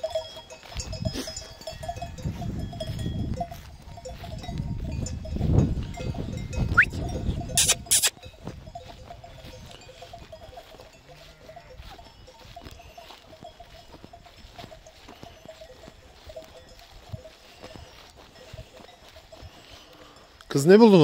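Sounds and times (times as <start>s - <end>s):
sheep bells jingling: 0.0s - 21.0s
short hissing bursts: 7.6s - 8.1s.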